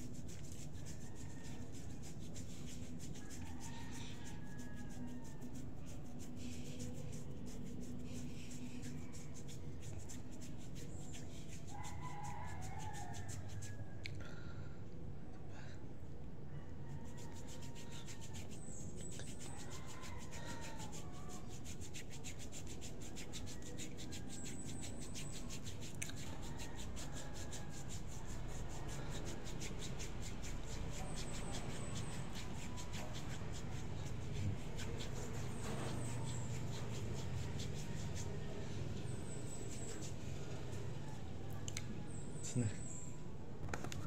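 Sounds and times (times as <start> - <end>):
fingers rubbing cream into skin: 0.0 - 14.0, 17.0 - 41.2, 43.7 - 44.0.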